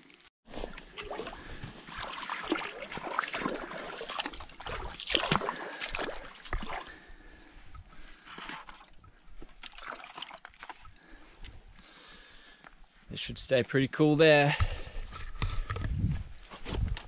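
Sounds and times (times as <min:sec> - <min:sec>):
water splashing in creek: 0:00.0 - 0:11.6.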